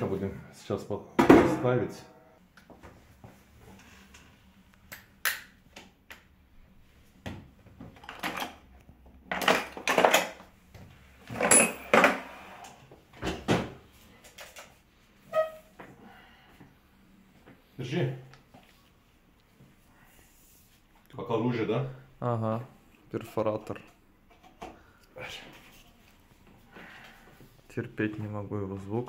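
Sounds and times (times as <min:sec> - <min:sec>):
objects knocking and clattering: 0:07.2 - 0:12.4.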